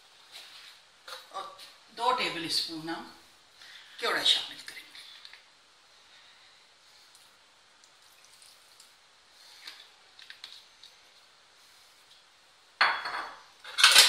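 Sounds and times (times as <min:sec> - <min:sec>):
liquid pouring: 0:07.1 - 0:11.0.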